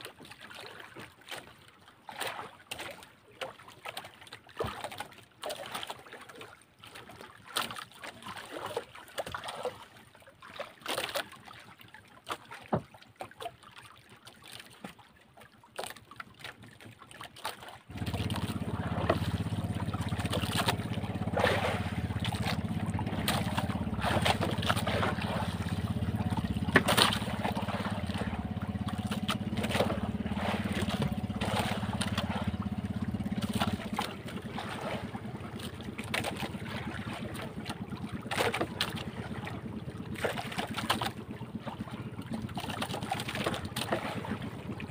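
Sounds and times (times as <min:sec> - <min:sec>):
water lapping against boat hull: 0:00.0 - 0:44.9
small knocks on hull: 0:17.9 - 0:39.1
boat engine humming: 0:17.9 - 0:44.9.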